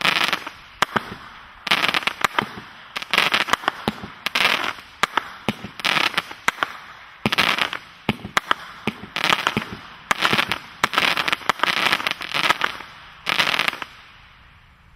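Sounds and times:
firework bangs: 0:00.0 - 0:14.1
firework crackle: 0:00.0 - 0:14.8.

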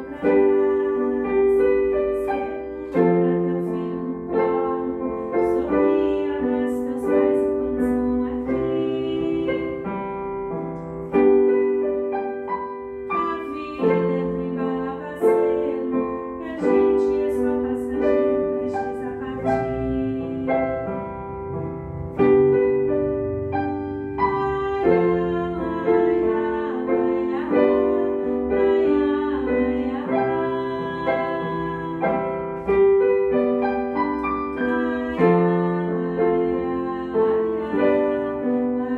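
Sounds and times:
piano chords: 0:00.0 - 0:38.9.

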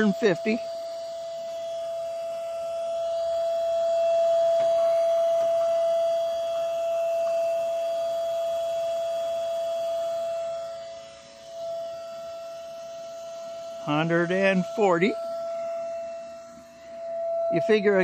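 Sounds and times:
electric pump whining: 0:00.0 - 0:18.0.

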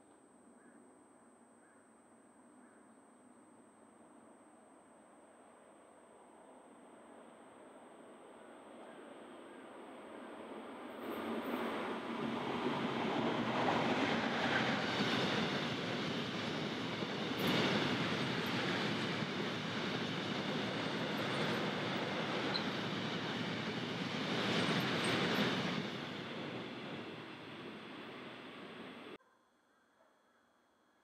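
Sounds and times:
freight train wheels rumbling: 0:11.0 - 0:29.2.

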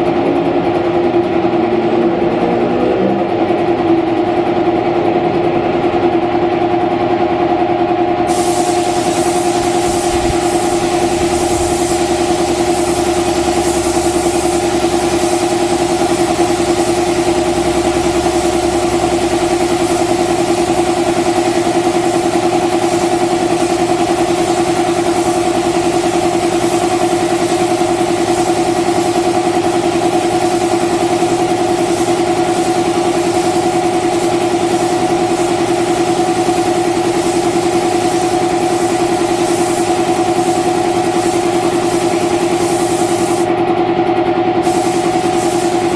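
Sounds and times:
air compressor running: 0:00.0 - 0:45.9
spray gun air hiss: 0:08.3 - 0:43.5, 0:44.6 - 0:45.9.

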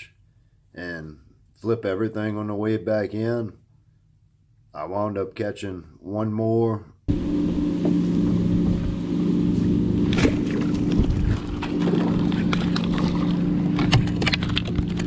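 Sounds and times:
motor hum: 0:07.1 - 0:15.0
wind rumble on microphone: 0:10.1 - 0:15.0.

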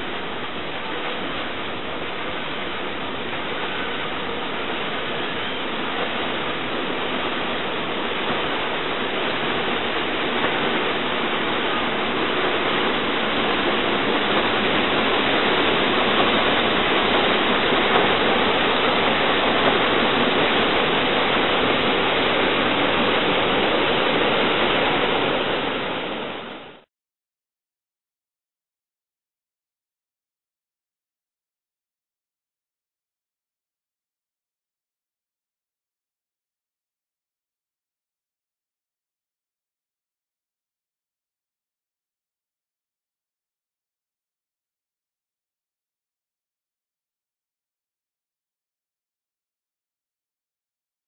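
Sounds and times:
paddle wheels churning water: 0:00.0 - 0:26.8.

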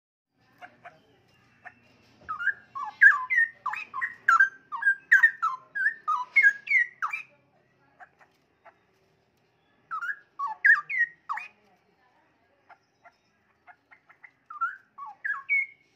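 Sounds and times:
bird singing whistled notes: 0:01.4 - 0:07.3, 0:09.8 - 0:11.5, 0:14.0 - 0:15.9.

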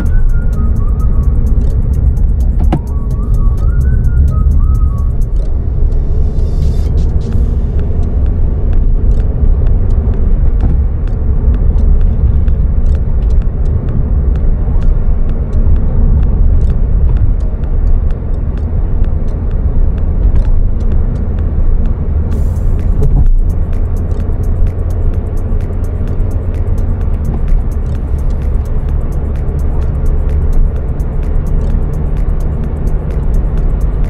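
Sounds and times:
car engine rumble: 0:00.0 - 0:34.0
light irregular ticks: 0:00.0 - 0:34.0
road noise: 0:00.0 - 0:34.0.

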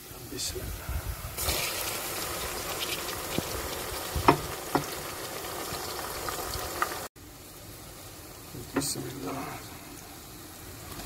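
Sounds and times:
onions sizzling in oil: 0:01.3 - 0:09.4.

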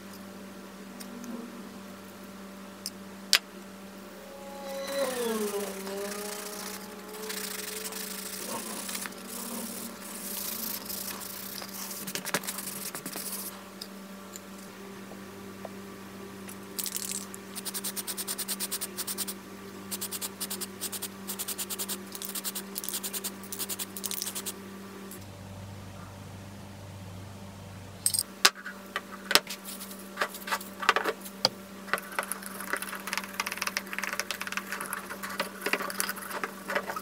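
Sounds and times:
steady low hum: 0:00.0 - 0:37.0
hand sanding metal part: 0:04.4 - 0:13.6.

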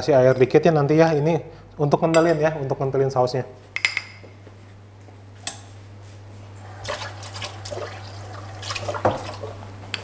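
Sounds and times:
steady low hum: 0:00.0 - 0:10.0
syrup crackling and bubbling: 0:06.6 - 0:09.7.

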